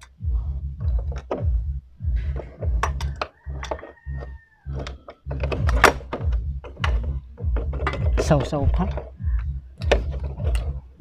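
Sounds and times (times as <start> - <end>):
handling thumps and knocks: 0.0 - 11.0
socket ratchet clicking: 2.3 - 9.2, 9.8 - 10.8.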